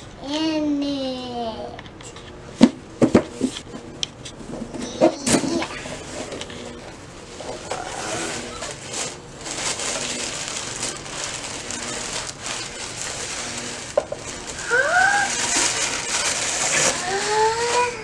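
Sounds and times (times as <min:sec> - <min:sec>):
tissue paper crinkling: 0:07.0 - 0:18.0.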